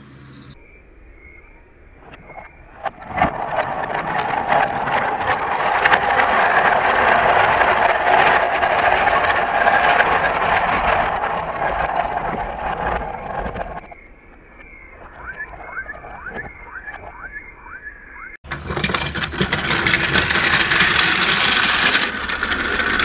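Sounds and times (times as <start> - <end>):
plastic wheels rattling on track: 3.0 - 13.9, 18.4 - 23.0
toy electric motor whirring: 18.8 - 23.0.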